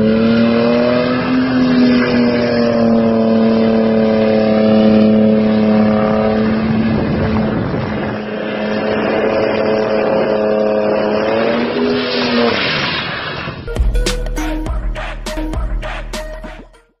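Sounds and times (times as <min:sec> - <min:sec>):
car engine at high revs: 0:00.0 - 0:13.5.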